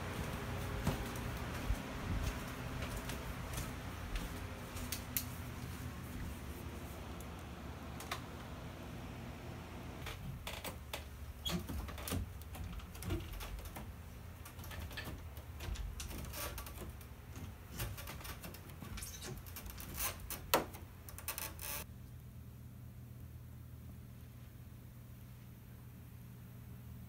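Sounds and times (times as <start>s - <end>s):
bare footsteps on wooden stairs: 0.0s - 6.7s
low steady hum: 0.0s - 17.7s, 21.8s - 27.0s.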